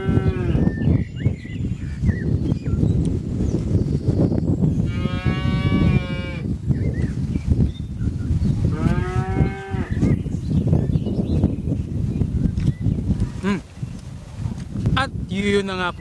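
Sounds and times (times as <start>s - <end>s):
farm animal calling: 0.0s - 0.7s, 8.7s - 10.2s.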